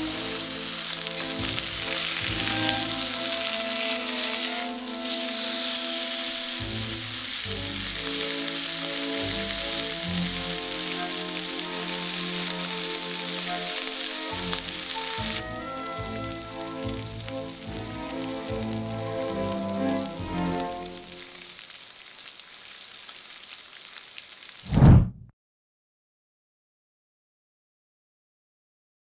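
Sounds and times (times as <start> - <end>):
background music with held notes: 0.0 - 21.4
steak sizzling in oil: 0.0 - 24.6.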